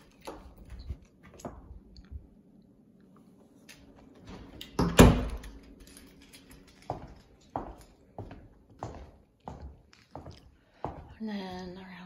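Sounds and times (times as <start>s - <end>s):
wooden door shutting: 4.7s - 5.6s.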